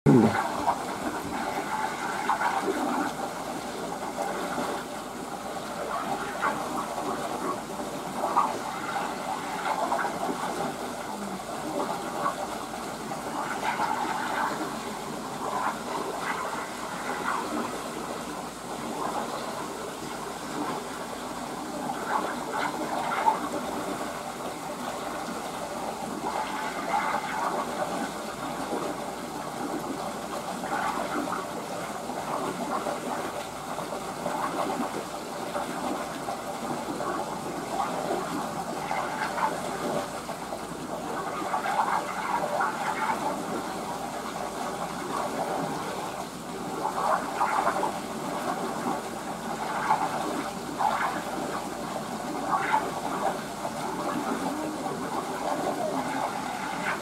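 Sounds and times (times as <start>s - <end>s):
water gushing into pool: 0.1s - 57.0s.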